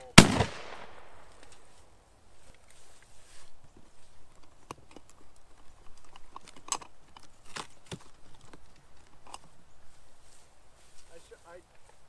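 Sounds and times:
sharp clicks and knocks: 0:04.3 - 0:09.5.

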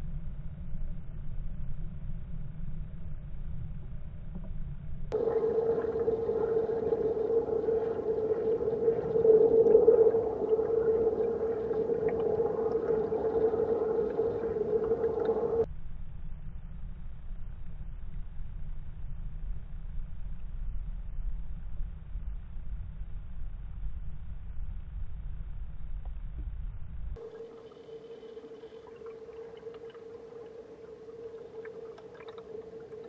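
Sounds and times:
underwater river rumble: 0:05.1 - 0:15.7, 0:27.2 - 0:33.0
loud hum with hiss: 0:05.2 - 0:15.6.

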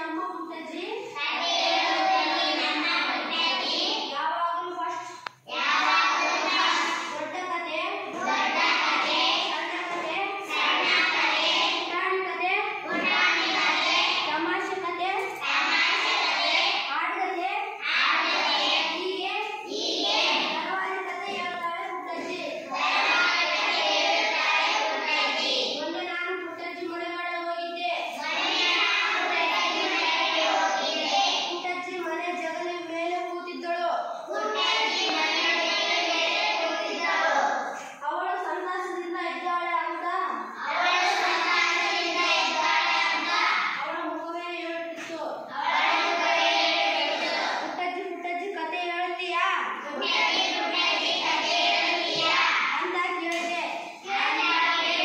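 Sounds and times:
children singing: 0:01.2 - 0:04.0, 0:05.5 - 0:07.1, 0:08.0 - 0:11.9, 0:12.8 - 0:14.3, 0:15.4 - 0:16.9, 0:17.8 - 0:19.0, 0:22.2 - 0:25.8, 0:28.2 - 0:31.6, 0:34.2 - 0:37.9, 0:40.4 - 0:43.8, 0:45.5 - 0:47.8, 0:49.9 - 0:52.8, 0:53.9 - 0:55.0.

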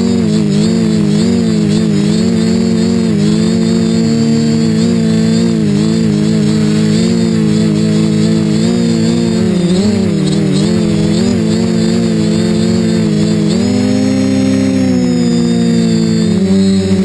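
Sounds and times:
quadcopter propellers buzzing: 0:00.0 - 0:17.0.

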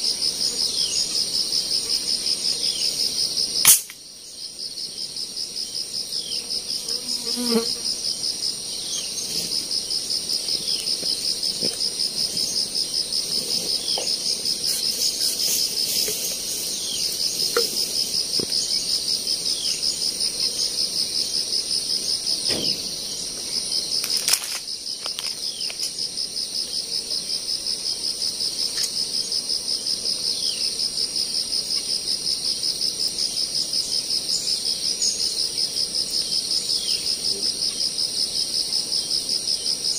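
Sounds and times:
insects chirring: 0:00.0 - 0:39.9
sharp crack: 0:03.6 - 0:04.0.

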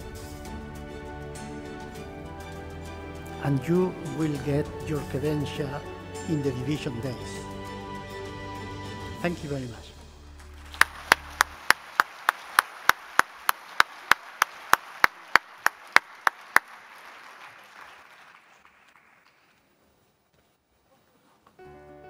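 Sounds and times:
audience applauding: 0:10.2 - 0:19.8
loud close claps: 0:10.4 - 0:19.7.

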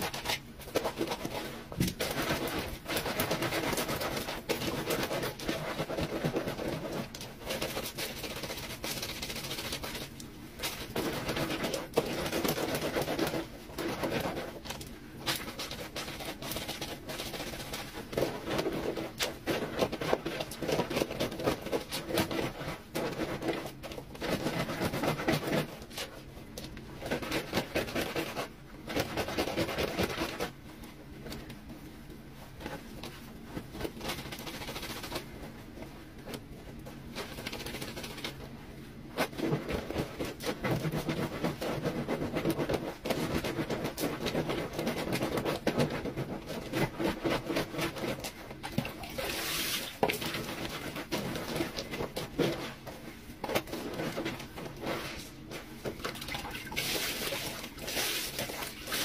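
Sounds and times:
clothes scrubbed on a washboard: 0:00.0 - 0:30.7, 0:31.7 - 0:59.0.

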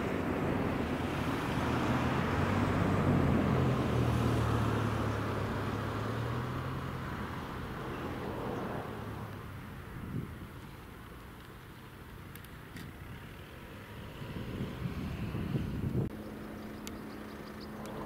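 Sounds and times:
jet engines running: 0:00.0 - 0:06.1, 0:12.0 - 0:18.0.

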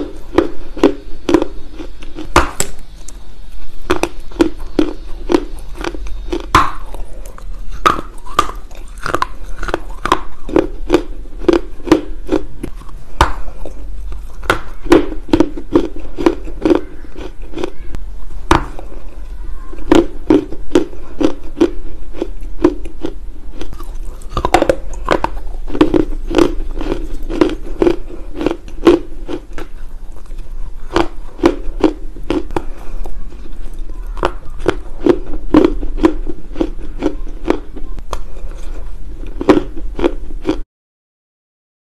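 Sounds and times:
clay crunching while chewed: 0:00.0 - 0:17.8, 0:18.4 - 0:40.6.

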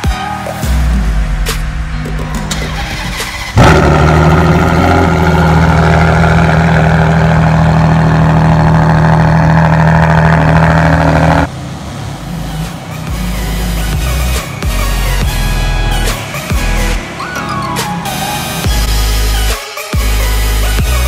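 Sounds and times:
car engine starting: 0:01.0 - 0:21.0
car engine idling: 0:01.1 - 0:21.0.

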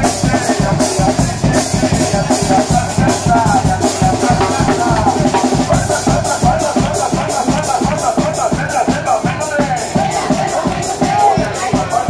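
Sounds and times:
bass drum and snare beat: 0:00.0 - 0:12.0
trumpets and tuba melody: 0:00.0 - 0:12.0.

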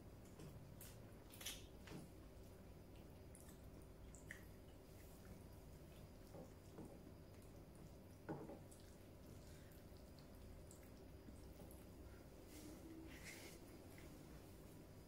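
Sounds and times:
chewing and mouth smacks: 0:02.5 - 0:08.0.

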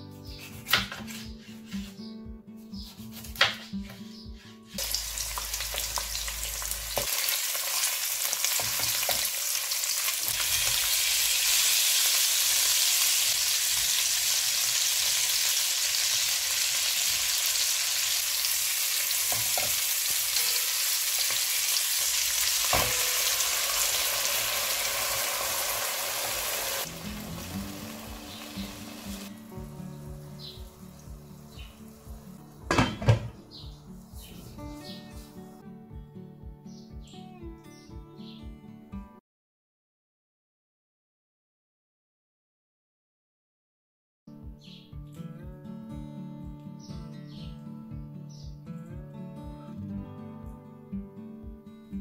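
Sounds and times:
fish sizzling in oil: 0:04.8 - 0:29.4.

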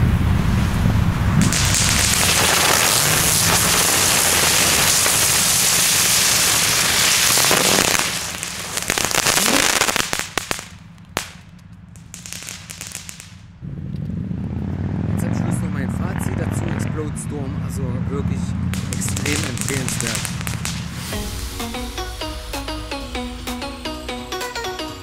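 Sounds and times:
fireworks crackling: 0:00.5 - 0:13.5, 0:18.7 - 0:22.1
sharp pops: 0:01.4 - 0:13.4, 0:18.7 - 0:21.1.

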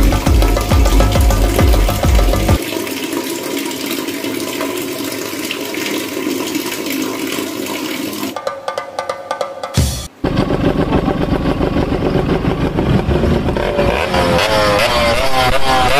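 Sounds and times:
running water rushing: 0:00.0 - 0:08.5.

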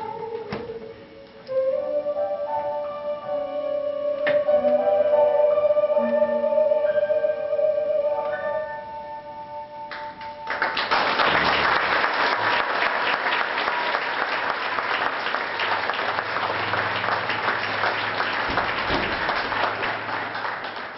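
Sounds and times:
woman singing with accompaniment: 0:00.0 - 0:02.7
audience applause: 0:10.5 - 0:20.9.

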